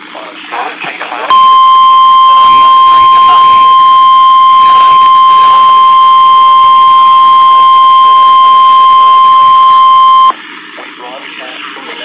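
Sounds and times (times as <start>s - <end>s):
loud steady alarm tone: 1.3s - 10.3s.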